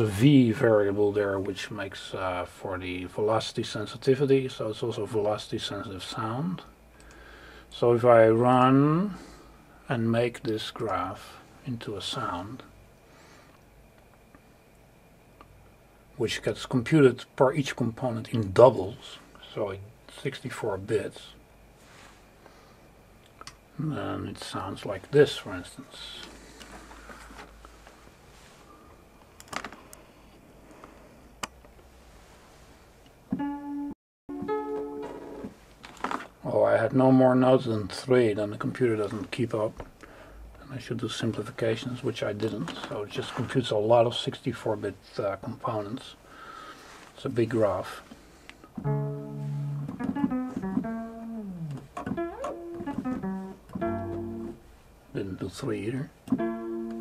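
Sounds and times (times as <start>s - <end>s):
low room hum: 0.0s - 57.0s
synthesized organ-like note: 48.8s - 54.7s.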